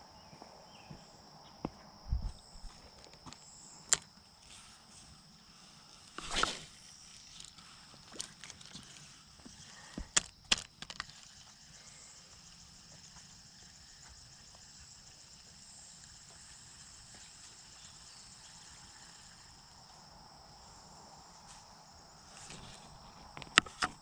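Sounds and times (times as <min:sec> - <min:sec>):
high-pitched insect drone: 0:00.0 - 0:24.0
rustling swish: 0:06.2 - 0:06.8.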